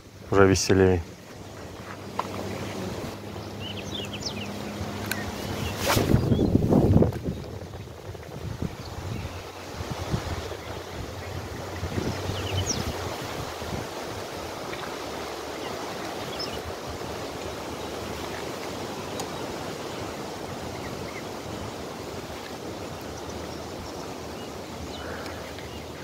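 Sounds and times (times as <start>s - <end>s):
strong wind on microphone: 2.8s - 14.5s.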